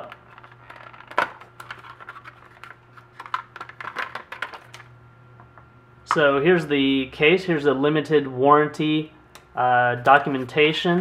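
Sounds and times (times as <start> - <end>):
packaging clicks and scratches: 0.0 - 4.9
plastic crinkling: 0.0 - 4.9.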